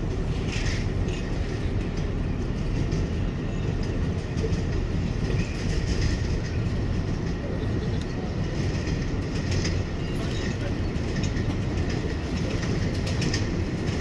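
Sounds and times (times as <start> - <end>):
subway train wheels rumbling: 0.0 - 14.0.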